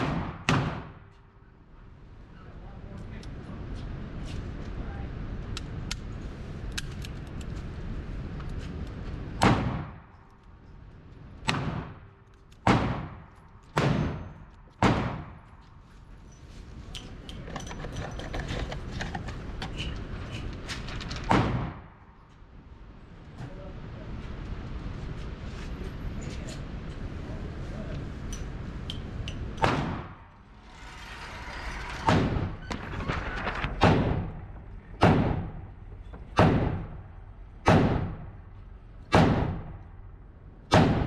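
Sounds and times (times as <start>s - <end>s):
echoing handgun shots: 0.0s - 1.0s.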